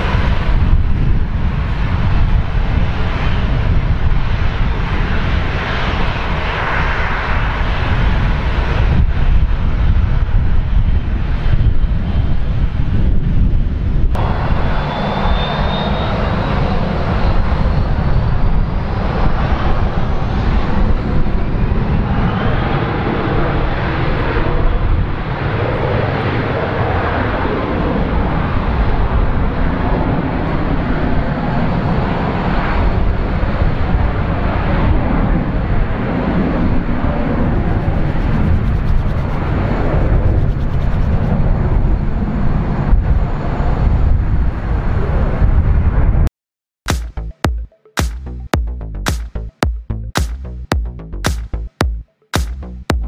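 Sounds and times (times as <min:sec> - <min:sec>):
jet engines spooling up: 0:14.2 - 0:22.6, 0:37.4 - 0:41.5.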